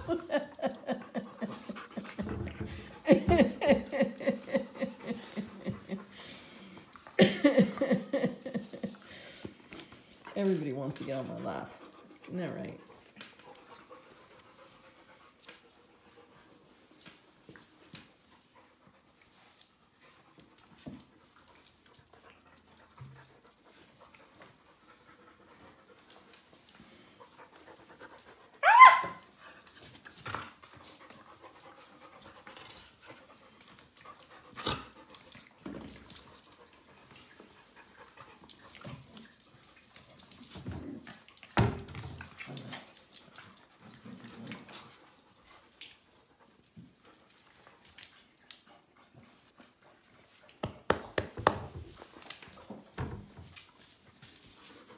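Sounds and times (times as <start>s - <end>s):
puppies panting: 0.0s - 41.6s
puppies playing and scuffling: 0.0s - 54.9s
puppy yelping: 28.6s - 29.3s.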